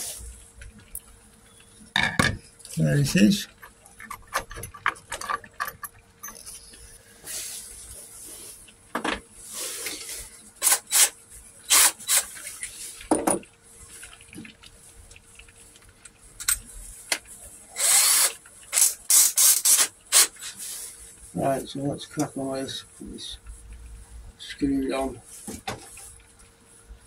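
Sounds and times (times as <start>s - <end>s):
drill noise burst: 10.6s - 12.3s, 17.8s - 20.5s
drill clicks and rattles: 17.8s - 20.4s.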